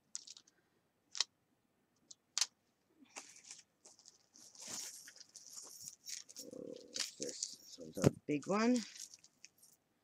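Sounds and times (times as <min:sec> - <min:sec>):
plastic bag crinkling: 0:03.2 - 0:09.8.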